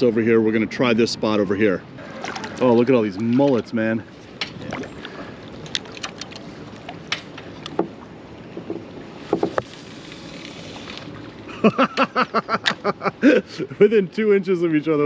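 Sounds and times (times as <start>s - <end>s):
man speaking: 0.0s - 1.9s, 2.5s - 4.0s, 13.7s - 15.0s
fishing rod clicks and taps: 5.5s - 7.9s.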